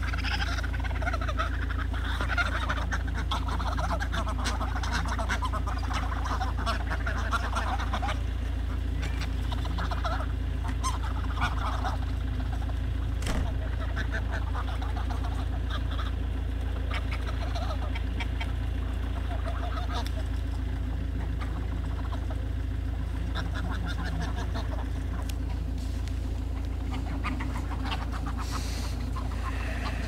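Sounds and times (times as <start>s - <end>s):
geese calling: 0.0s - 30.0s
steady low rumble: 0.0s - 30.0s.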